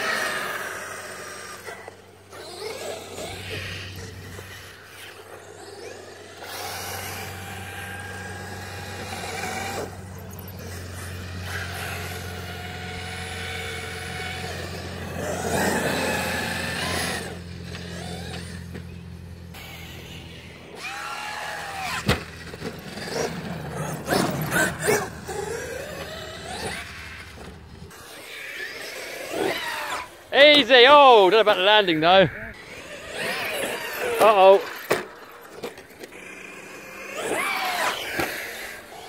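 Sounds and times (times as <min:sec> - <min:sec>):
electric motor whine: 0:00.0 - 0:30.8.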